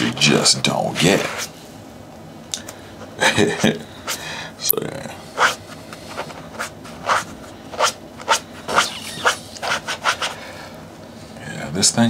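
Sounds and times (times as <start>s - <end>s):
brush scrubbing a sneaker: 5.4s - 10.4s.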